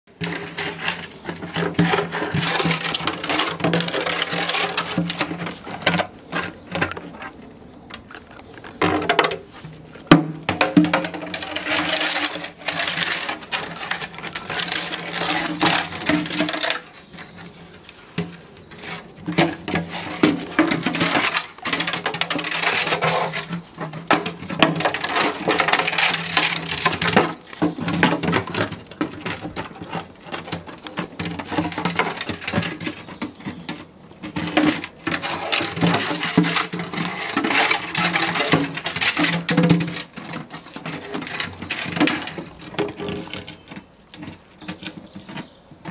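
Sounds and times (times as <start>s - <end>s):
plastic watering can scraping on stone: 0.1s - 45.9s.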